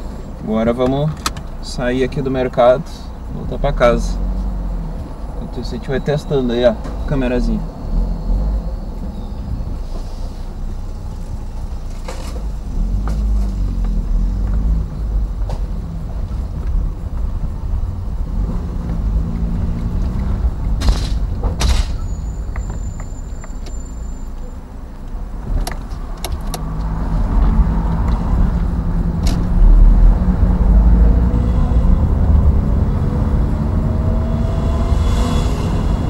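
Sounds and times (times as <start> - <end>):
road and body rumble: 0.0 - 36.0
car engine note: 26.6 - 36.0.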